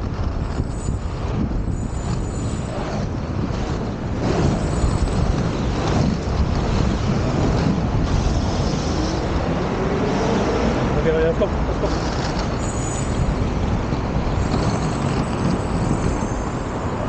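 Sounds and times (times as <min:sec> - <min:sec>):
city traffic: 0:00.0 - 0:17.0
skate wheels rolling on concrete: 0:00.0 - 0:17.0
vehicle engine accelerating: 0:00.0 - 0:17.0.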